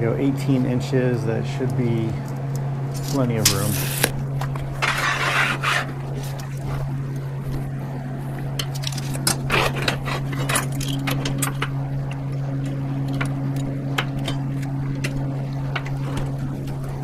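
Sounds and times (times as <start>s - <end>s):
steady low hum: 0.0s - 17.0s
short scraping rush: 4.8s - 6.4s
tools and metal clicking: 8.6s - 11.7s.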